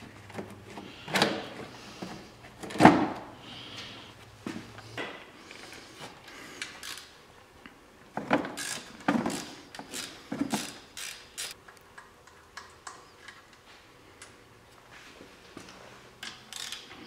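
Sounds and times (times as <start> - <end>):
socket ratchet clicking: 9.9 - 11.6, 16.2 - 16.9.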